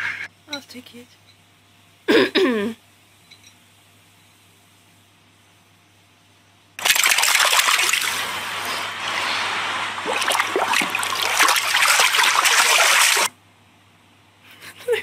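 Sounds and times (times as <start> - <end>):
pool water splashing: 6.8 - 13.3.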